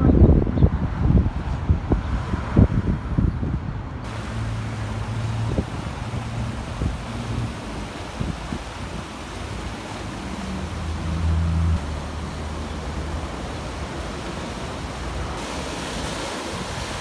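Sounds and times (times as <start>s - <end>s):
wind rumbling on microphone: 0.0s - 11.8s
sea waves washing over rocks: 4.1s - 17.0s.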